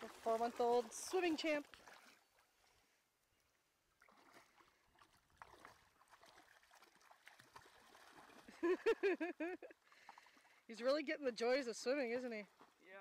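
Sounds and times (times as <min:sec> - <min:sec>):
puppy splashing in shallow water: 0:00.0 - 0:02.8, 0:03.9 - 0:10.7, 0:12.3 - 0:13.0.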